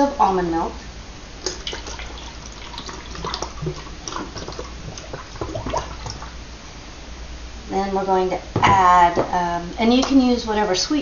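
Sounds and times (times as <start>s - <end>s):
milk pouring through funnel: 1.4s - 6.4s.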